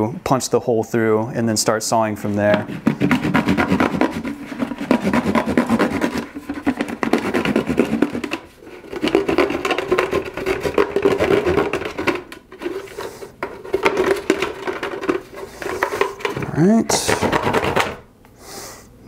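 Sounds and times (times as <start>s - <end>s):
knife sawing through plastic: 2.2s - 16.4s.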